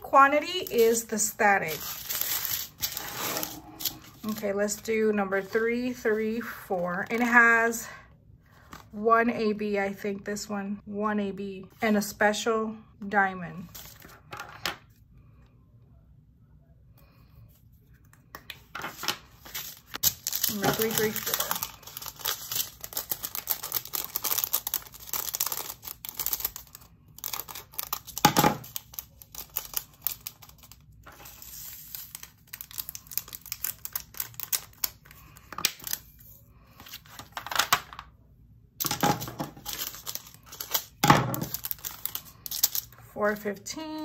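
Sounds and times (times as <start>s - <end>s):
plastic bags crinkling: 0.4s - 4.5s, 19.4s - 36.0s, 38.8s - 43.0s.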